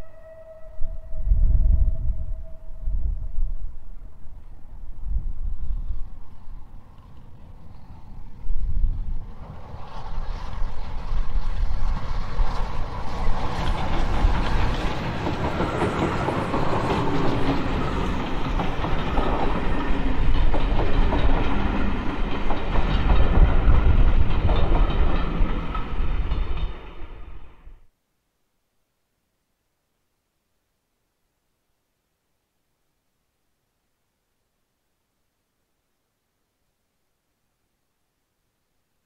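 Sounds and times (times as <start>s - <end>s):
train wheels clattering over rail joints: 11.9s - 27.1s.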